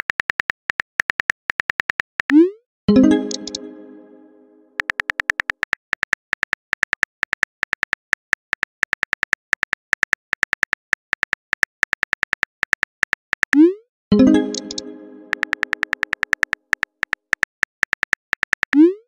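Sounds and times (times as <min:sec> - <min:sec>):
phone keyboard typing clicks: 0:04.8 - 0:13.6, 0:14.3 - 0:18.9.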